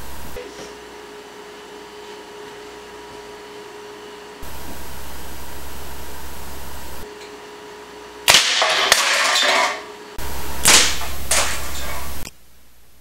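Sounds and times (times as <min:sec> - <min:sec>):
dart gun firing crack: 0:08.3 - 0:09.6, 0:10.6 - 0:11.8.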